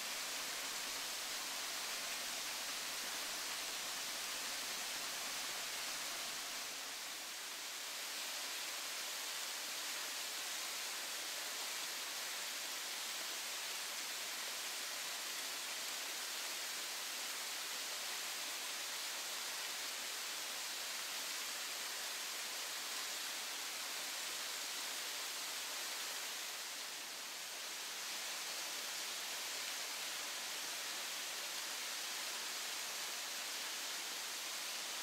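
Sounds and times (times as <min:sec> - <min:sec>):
waterfall hissing: 0:00.0 - 0:35.0.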